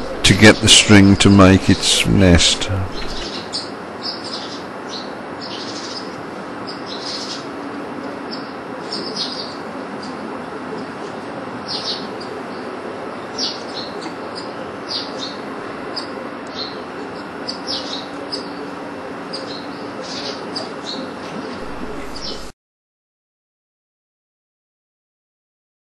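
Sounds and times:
faint low hum: 0.0 - 3.5, 7.7 - 22.5
bird chirping: 19.3 - 22.5.

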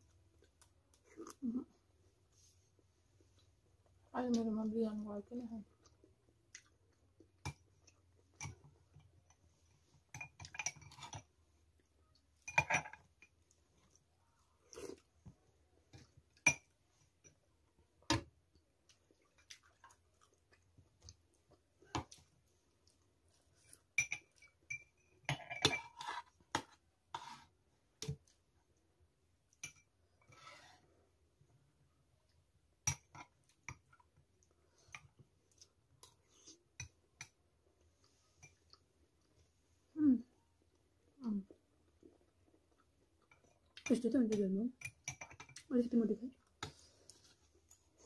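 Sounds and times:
spoons clinking on glass and plates: 23.9 - 26.1.

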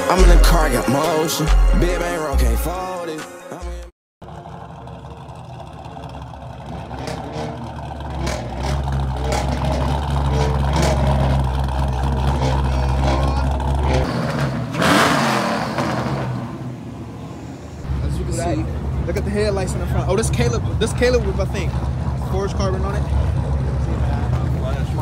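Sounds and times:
car engines rumbling: 4.2 - 25.0
car revving or driving past: 4.3 - 19.2.

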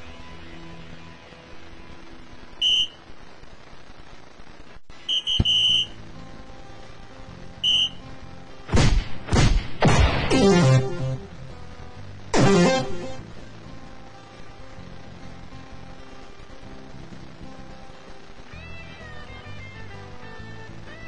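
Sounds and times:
background music: 0.0 - 3.3, 4.9 - 21.0
electronic dartboard hit tones: 5.3 - 5.8, 8.7 - 11.3
sweeping electronic effects: 10.3 - 11.6, 12.4 - 13.3.

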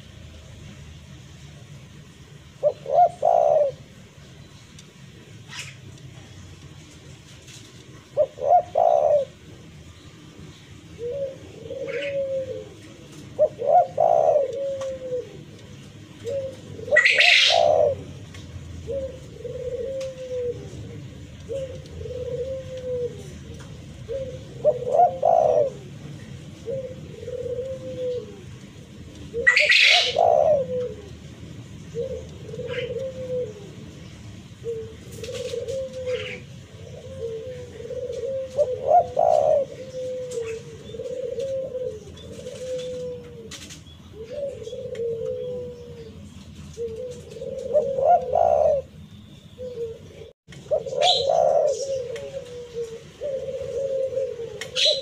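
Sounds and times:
dove cooing: 2.4 - 4.3, 5.0 - 55.0.

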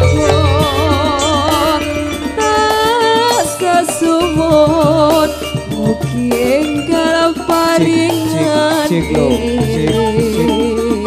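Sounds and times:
bass guitar: 0.0 - 7.5
gamelan metallophones: 0.0 - 11.0
hand drum: 0.0 - 11.0
woman singing with vibrato: 0.0 - 11.0.

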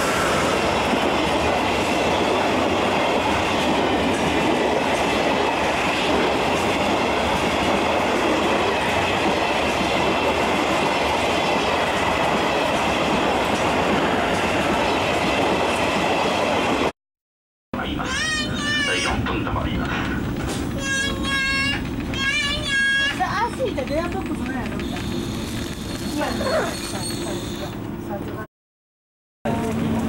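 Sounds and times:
train wheels rumbling on rail: 0.0 - 16.9, 18.1 - 28.5, 29.5 - 30.0
clattering over rail joints: 21.7 - 25.0.

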